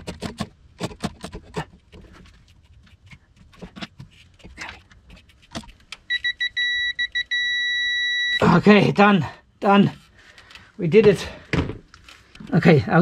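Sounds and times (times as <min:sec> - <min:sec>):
digital wrench beeping: 0:06.1 - 0:08.4.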